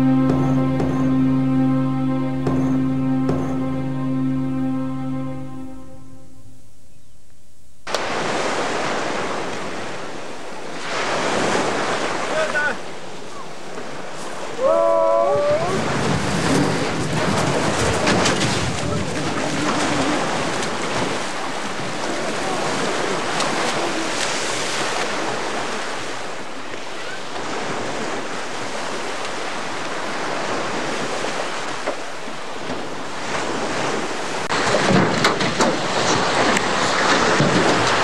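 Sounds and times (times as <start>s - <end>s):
waves washing up pebble beach: 7.9s - 12.9s, 15.5s - 32.2s
wind on microphone: 14.4s - 31.8s.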